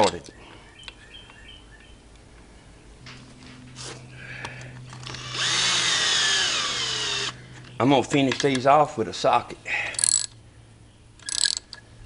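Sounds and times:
cordless drill motor whine: 0:05.0 - 0:07.4.

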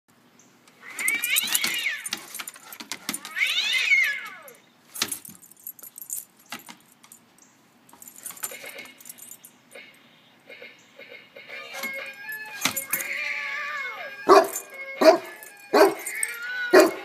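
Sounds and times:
toy cat electronic meowing: 0:00.8 - 0:02.1, 0:03.2 - 0:04.6, 0:11.5 - 0:17.0.

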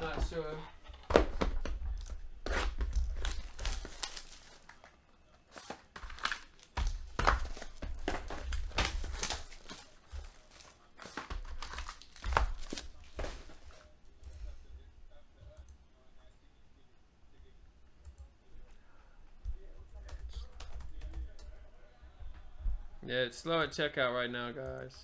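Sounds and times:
plastic wrap and foil crinkling: 0:01.6 - 0:13.9.

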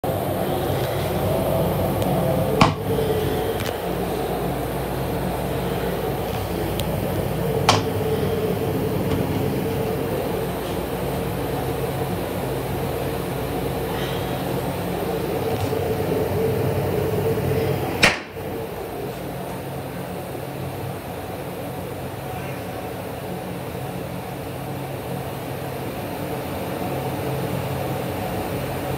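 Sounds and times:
railcar hum: 0:00.0 - 0:28.9
sharp knocks: 0:02.6 - 0:02.9.

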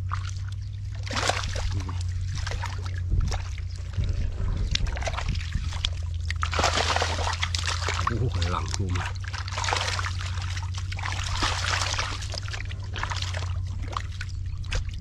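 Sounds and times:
hands splashing in muddy water: 0:00.0 - 0:15.0
steady low hum: 0:00.0 - 0:15.0.

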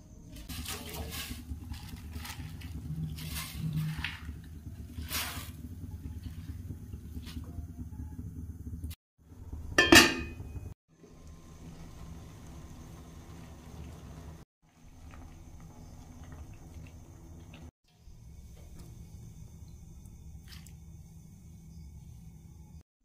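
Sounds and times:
leaves swished in water: 0:00.4 - 0:05.6
water boiling hiss: 0:00.4 - 0:07.3, 0:11.0 - 0:22.8
steady low rumble: 0:01.2 - 0:14.3
metal bowl clink: 0:09.8 - 0:10.6.

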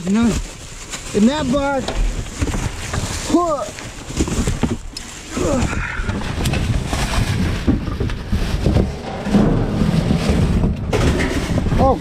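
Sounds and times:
plastic bag crinkling: 0:00.0 - 0:05.6
scraping: 0:00.1 - 0:12.0
dull thumps: 0:05.7 - 0:12.0.

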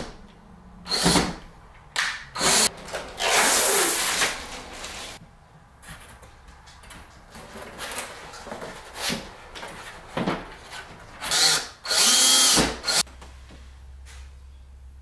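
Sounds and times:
cordless drill motor whine: 0:11.3 - 0:13.0.

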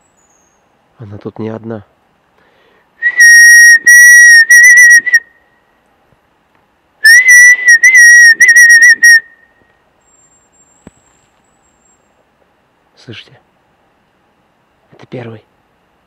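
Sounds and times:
man whistling high: 0:03.0 - 0:05.3, 0:07.0 - 0:09.6.

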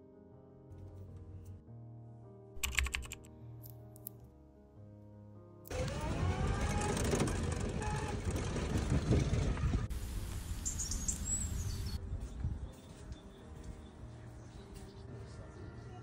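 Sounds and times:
outdoor air: 0:05.6 - 0:16.0
vehicle engine and road noise: 0:05.7 - 0:12.0
high bird chirps: 0:10.6 - 0:12.0.

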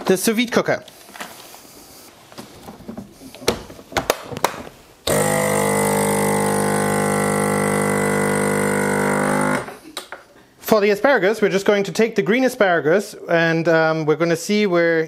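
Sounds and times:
vacuum pump humming: 0:05.1 - 0:09.8.

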